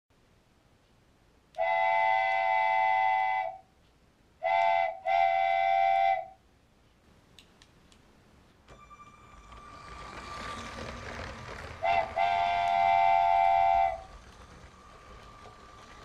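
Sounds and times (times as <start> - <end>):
multi-tone train horn blasts: 1.6 - 3.6, 4.4 - 6.4, 11.8 - 14.2.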